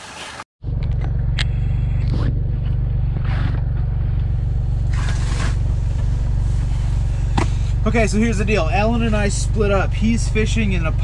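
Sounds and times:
steady low drone: 0.6 - 11.0
jacket rustling and scraping: 4.9 - 7.6.

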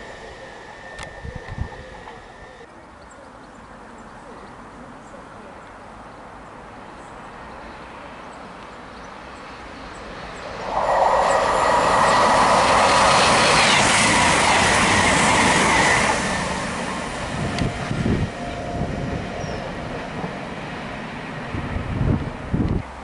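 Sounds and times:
high whine: 0.0 - 2.7, 9.9 - 19.6
train passing at speed: 0.0 - 2.7, 7.3 - 23.0.

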